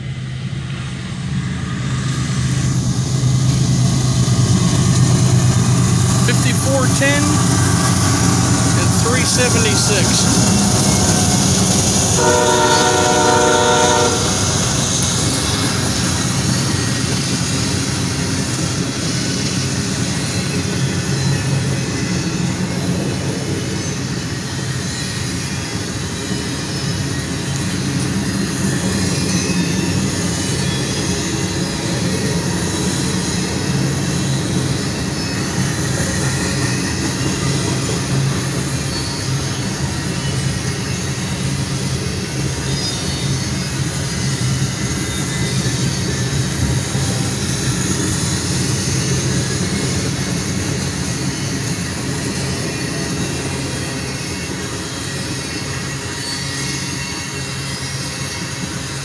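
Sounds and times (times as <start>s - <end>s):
train cars rolling over rails: 0.0s - 59.0s
locomotive horn chord: 12.2s - 14.4s.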